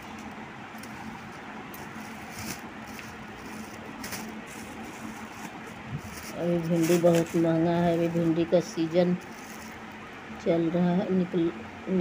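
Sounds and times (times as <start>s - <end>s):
plastic bag rustling: 0.8s - 9.9s.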